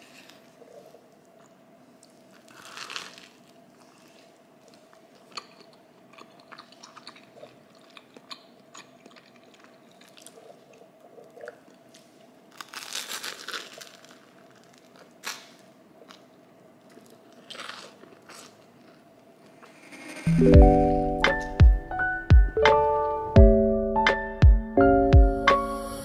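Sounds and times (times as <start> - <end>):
crunch of biting toast: 2.3 - 4.2, 16.9 - 19.0
small crackles and clicks: 9.1 - 16.2.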